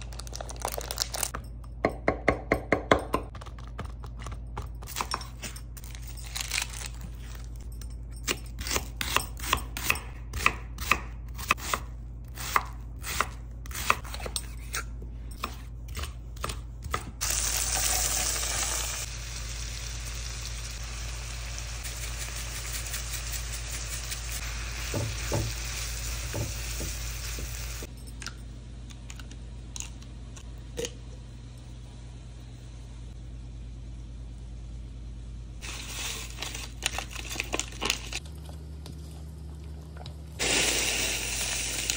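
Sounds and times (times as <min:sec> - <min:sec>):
knife chopping on wooden board: 0:08.6 - 0:14.8
vegetables sizzling in a pan: 0:17.2 - 0:27.9, 0:40.4 - 0:41.9
utensil knocking in pan: 0:24.8 - 0:27.6.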